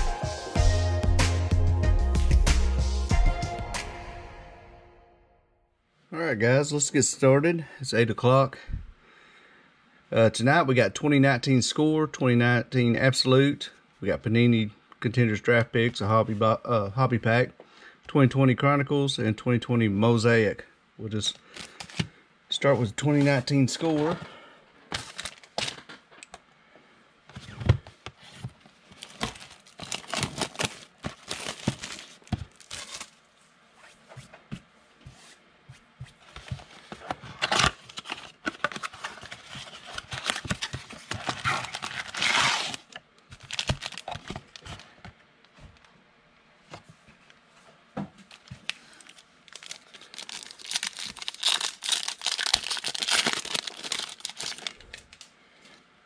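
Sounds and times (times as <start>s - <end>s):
plastic wrapper crinkling: 21.4s - 22.1s, 25.0s - 26.0s, 28.8s - 33.2s, 37.4s - 44.9s, 48.3s - 55.3s
cardboard box tearing: 29.0s - 33.1s, 37.4s - 42.9s, 49.6s - 54.7s.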